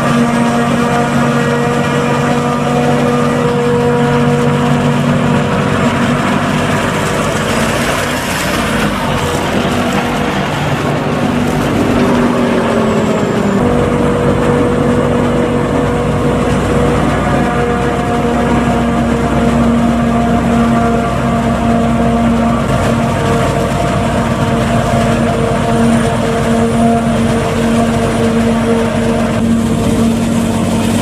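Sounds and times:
forage harvester droning: 0:00.0 - 0:31.0
tractor engine driving past: 0:00.0 - 0:31.0.

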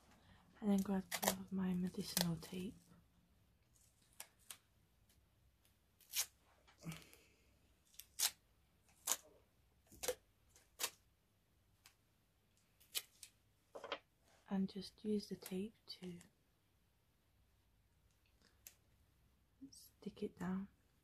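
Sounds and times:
tape tearing crackles: 0:00.8 - 0:02.5, 0:06.0 - 0:06.4, 0:07.8 - 0:09.3.

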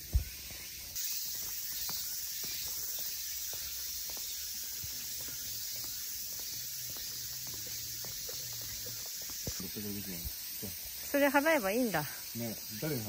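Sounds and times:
footsteps on asphalt: 0:00.0 - 0:10.4
high outdoor hiss: 0:00.0 - 0:13.0.

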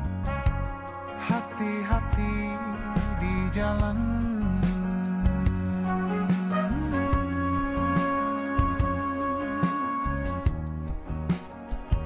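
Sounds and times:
soft low beats: 0:02.0 - 0:12.0
long held music note: 0:04.9 - 0:10.6.

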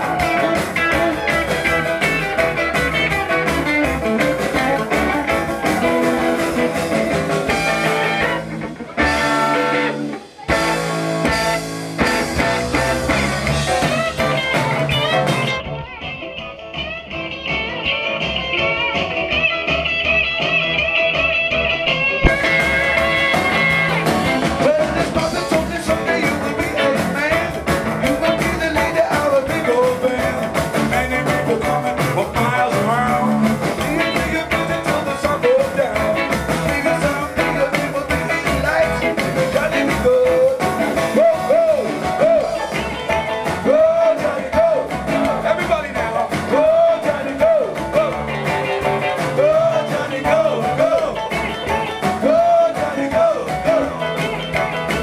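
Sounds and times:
upright double bass: 0:00.0 - 0:15.8, 0:17.8 - 0:55.0
drum kit: 0:00.0 - 0:55.0
electric guitars: 0:00.0 - 0:55.0
man singing: 0:22.2 - 0:55.0.

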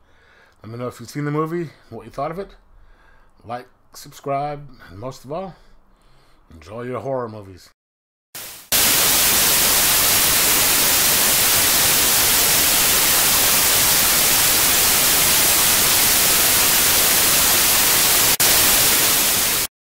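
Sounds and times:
loud static hiss: 0:08.4 - 0:19.7.

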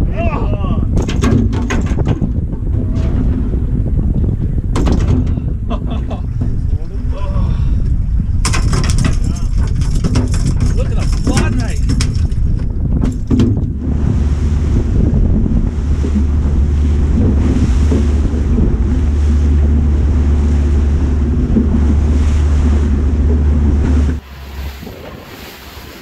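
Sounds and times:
boat engine drone: 0:00.0 - 0:26.0
wind buffeting microphone: 0:00.0 - 0:26.0
knocks: 0:01.0 - 0:03.4, 0:04.7 - 0:05.5, 0:13.0 - 0:13.7
rushing water: 0:13.2 - 0:26.0.

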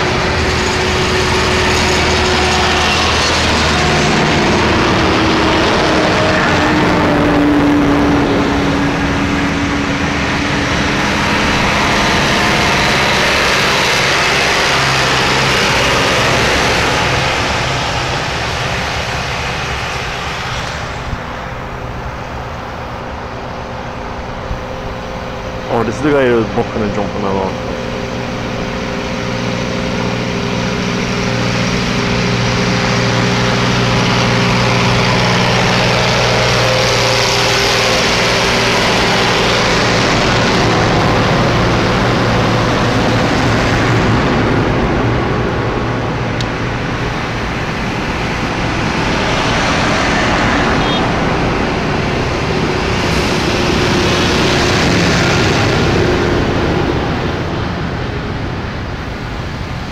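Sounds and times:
tractors driving past: 0:00.0 - 0:59.9.

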